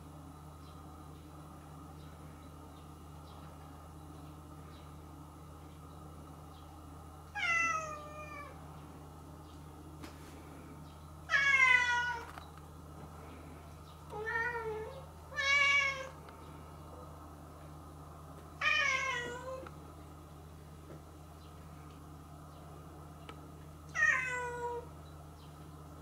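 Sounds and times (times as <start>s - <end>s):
cat meowing: 11.3s - 12.3s, 24.0s - 24.8s.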